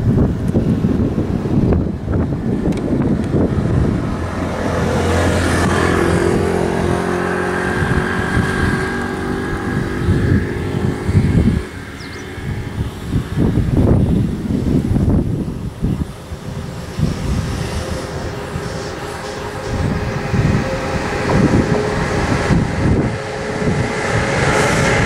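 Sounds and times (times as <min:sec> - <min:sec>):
electric train hum: 0:00.0 - 0:25.0
wind buffeting microphone: 0:00.0 - 0:25.0
high bird chirp: 0:11.9 - 0:12.4.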